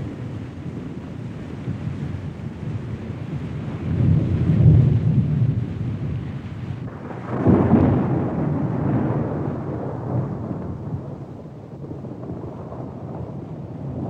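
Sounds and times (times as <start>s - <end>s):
thunder rumbling: 0.0s - 14.0s.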